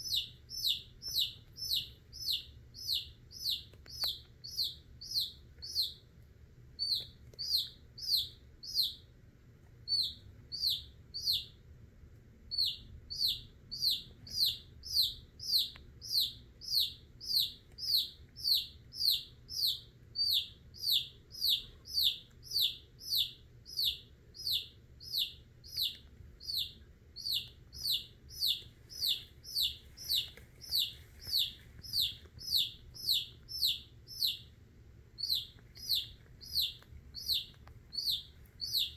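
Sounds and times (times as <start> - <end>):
chick peeping in distress: 12.5 - 34.4.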